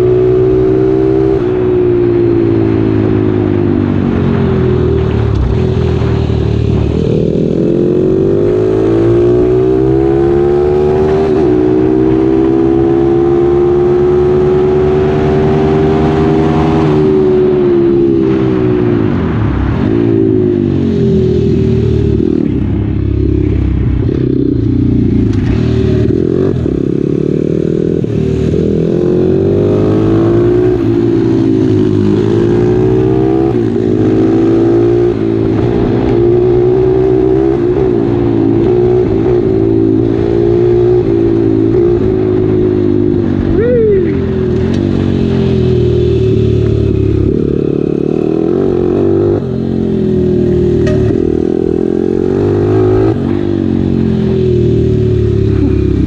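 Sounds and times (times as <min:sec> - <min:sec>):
motorbike engine revving: 0:19.3 - 0:56.0.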